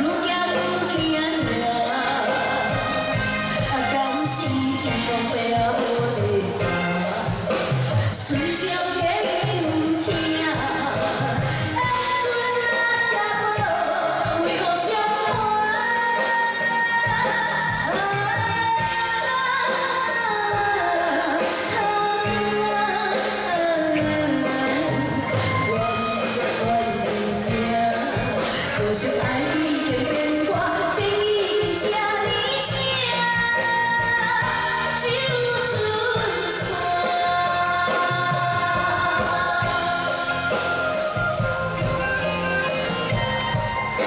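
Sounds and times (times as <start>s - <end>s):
live band with drum beat: 0.0s - 44.0s
woman singing into microphone: 0.0s - 44.0s.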